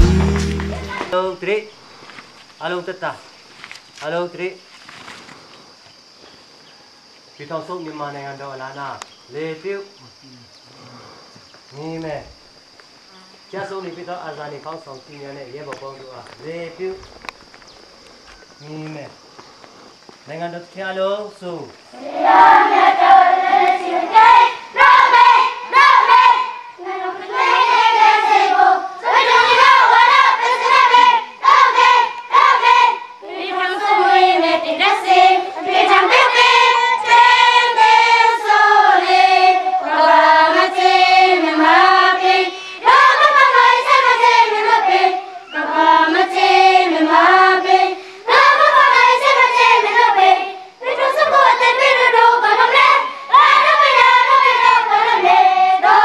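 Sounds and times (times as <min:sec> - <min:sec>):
children singing in unison: 0:00.0 - 0:01.2, 0:22.0 - 0:56.0.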